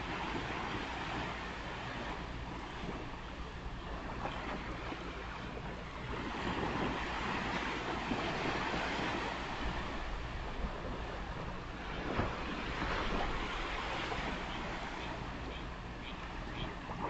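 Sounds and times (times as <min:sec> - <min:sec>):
ocean waves washing: 0:00.0 - 0:17.0
wave breaking: 0:03.9 - 0:17.0.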